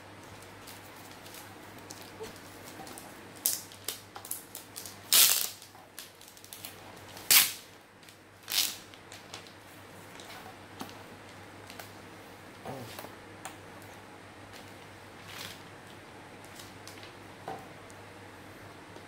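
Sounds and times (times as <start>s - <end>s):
packaging ripping and crackling: 0.4s - 7.6s, 8.4s - 9.6s.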